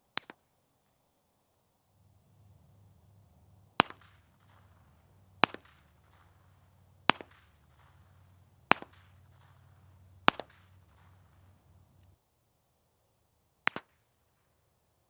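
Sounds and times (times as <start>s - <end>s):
pistol shots with echo: 2.2s - 12.1s.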